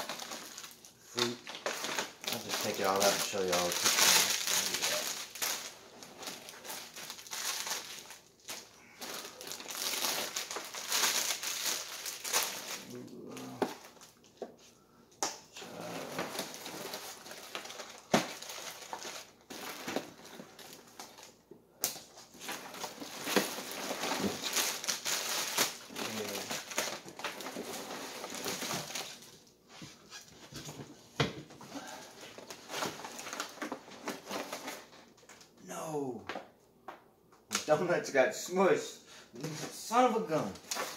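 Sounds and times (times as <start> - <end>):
plastic packaging crinkling: 0.0 - 14.3, 15.8 - 29.4, 31.8 - 35.5, 40.0 - 40.9.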